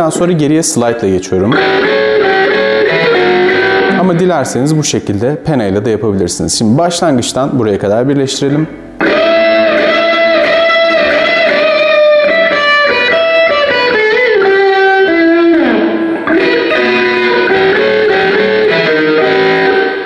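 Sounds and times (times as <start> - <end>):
electric guitar solo: 1.4 - 4.5, 8.5 - 20.0.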